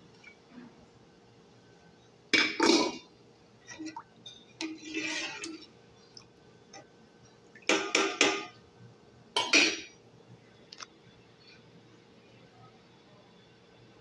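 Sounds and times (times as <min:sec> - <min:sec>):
metal spoon scraping a pot: 0:03.8 - 0:05.7.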